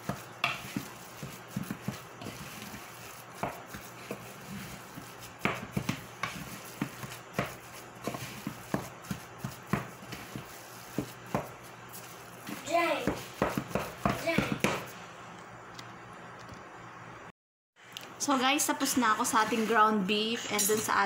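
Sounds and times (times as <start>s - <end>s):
wooden spoon scraping bowl: 0.0s - 14.9s, 19.3s - 20.1s.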